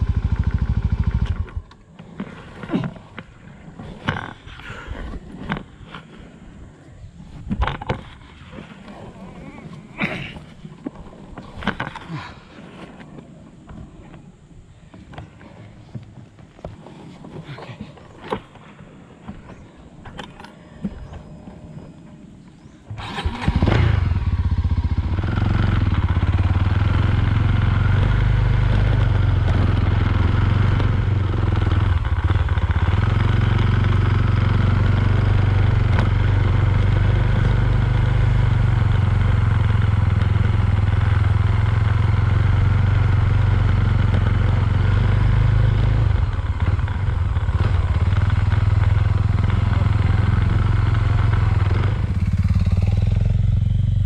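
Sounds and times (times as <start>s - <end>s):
motorcycle engine running: 0.0s - 4.6s, 23.0s - 54.0s.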